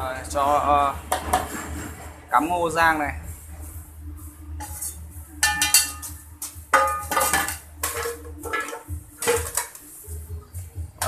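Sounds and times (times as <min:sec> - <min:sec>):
metal pan clanking on basin: 0:05.4 - 0:09.8.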